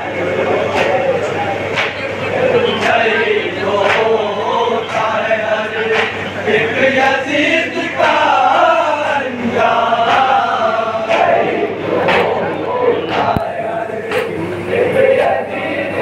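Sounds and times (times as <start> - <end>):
men chanting together: 0.0 - 16.0
sharp slaps: 1.7 - 2.0.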